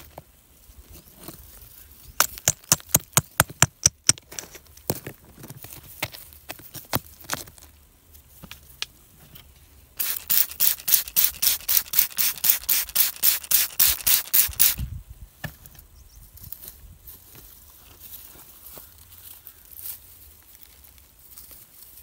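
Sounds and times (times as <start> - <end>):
spray bottle squirting: 10.0 - 14.8.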